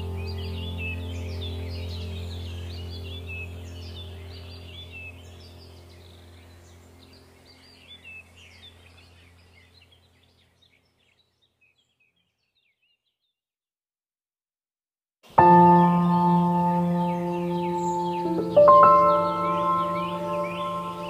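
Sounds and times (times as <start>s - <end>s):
low steady drone: 0.0s - 9.9s, 15.4s - 21.0s
small birds chirping: 0.0s - 13.4s, 15.3s - 21.0s.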